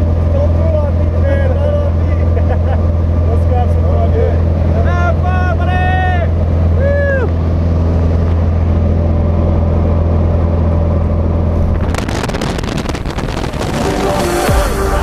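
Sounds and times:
propeller engine drone: 0:00.0 - 0:15.0
harsh rushing crackling noise: 0:11.4 - 0:15.0
electronic music: 0:13.5 - 0:15.0.

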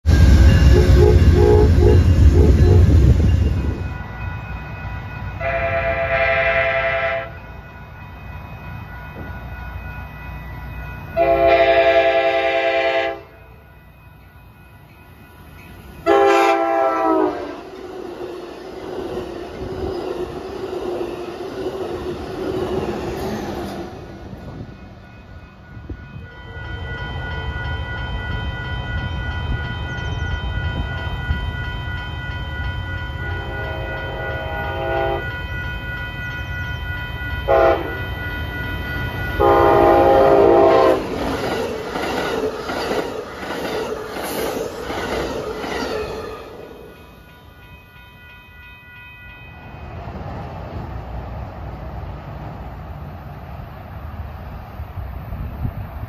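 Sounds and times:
crossing bells ringing: 0:00.0 - 0:50.5
train rushing past: 0:00.0 - 0:56.0
train horn: 0:00.6 - 0:03.1, 0:05.4 - 0:07.4, 0:11.2 - 0:13.5, 0:16.0 - 0:17.7, 0:33.2 - 0:35.4, 0:37.4 - 0:38.2, 0:39.3 - 0:41.1.

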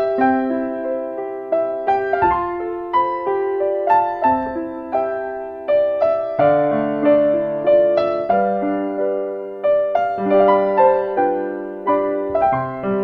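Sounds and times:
gentle piano music: 0:00.0 - 0:13.0.

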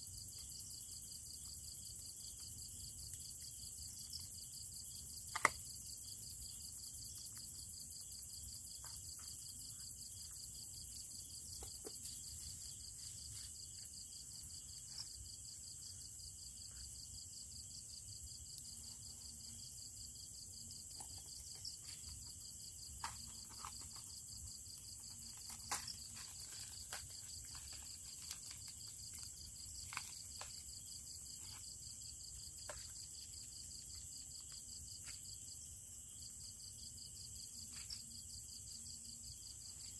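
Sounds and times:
cricket trill: 0:00.0 - 0:39.9
small clicks and taps: 0:05.3 - 0:05.7.

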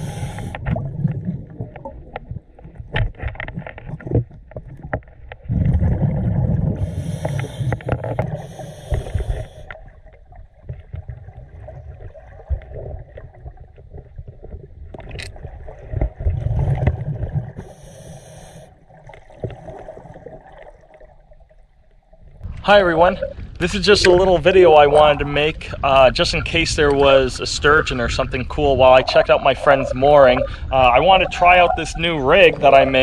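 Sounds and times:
regulator inhalation hiss: 0:00.0 - 0:00.6, 0:06.8 - 0:09.8, 0:17.6 - 0:18.7
regulator exhale bubbling: 0:00.0 - 0:02.4, 0:05.5 - 0:10.2, 0:15.4 - 0:21.2, 0:23.0 - 0:33.0.

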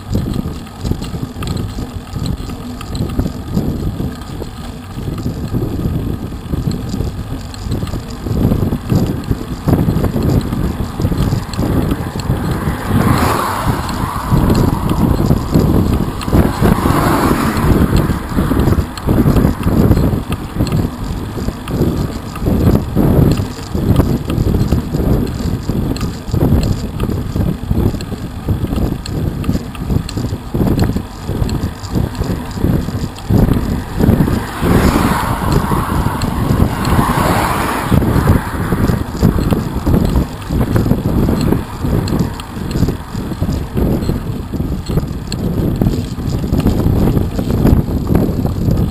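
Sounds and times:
road noise: 0:00.0 - 0:48.9
wind buffeting microphone: 0:00.0 - 0:48.9
car passing by: 0:11.2 - 0:19.1, 0:33.8 - 0:40.2.

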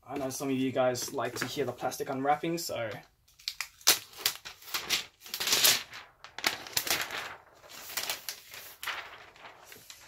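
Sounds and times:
plastic wrap crinkling: 0:03.3 - 0:10.0
plastic wrap snapping: 0:03.3 - 0:10.0
plastic wrap rustling: 0:03.4 - 0:10.0.

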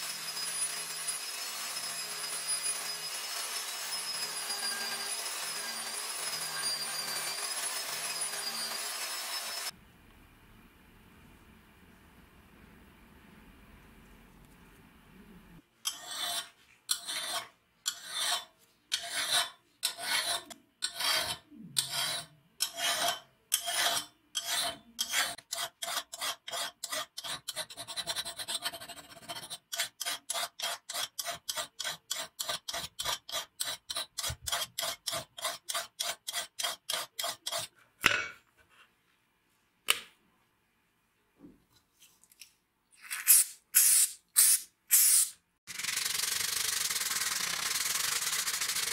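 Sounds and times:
file scraping steel blade: 0:00.0 - 0:09.7, 0:15.8 - 0:37.8.

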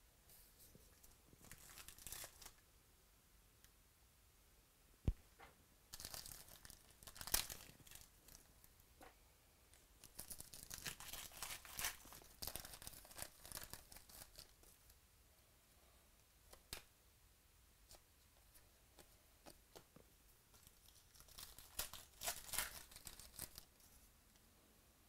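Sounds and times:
foil wrappers crinkling: 0:01.4 - 0:02.6, 0:06.0 - 0:08.5, 0:10.0 - 0:14.6, 0:20.6 - 0:23.8.

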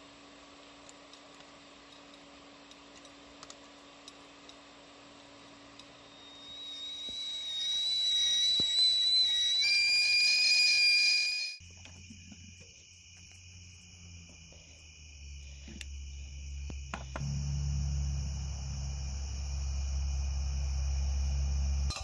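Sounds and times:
kettle whistling: 0:05.4 - 0:11.6, 0:18.4 - 0:22.0
crickets chirping: 0:05.9 - 0:22.0.

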